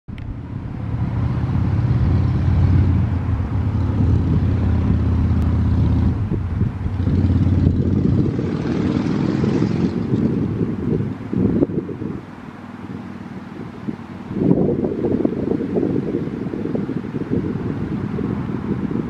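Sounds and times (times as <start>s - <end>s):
wind buffeting microphone: 0.1s - 19.0s.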